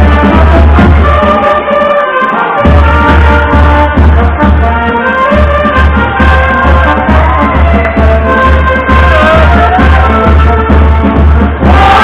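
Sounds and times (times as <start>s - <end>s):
music with pulsing bass beat: 6.0s - 12.0s.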